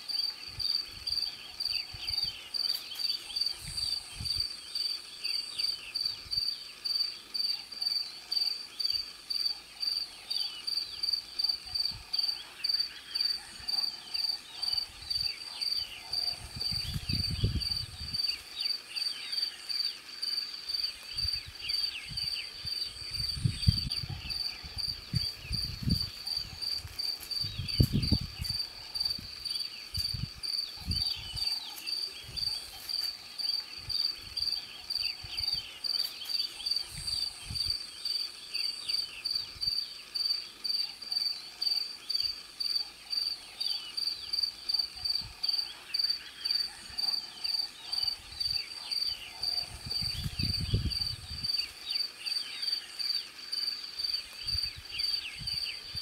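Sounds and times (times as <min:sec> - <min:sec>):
cricket chirping: 0:00.0 - 0:56.0.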